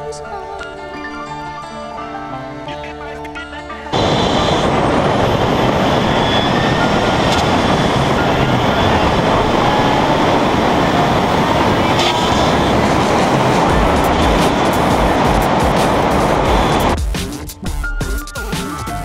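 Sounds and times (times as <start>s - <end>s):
wind blowing on microphone: 3.9s - 17.0s
wind rushing: 4.0s - 17.0s.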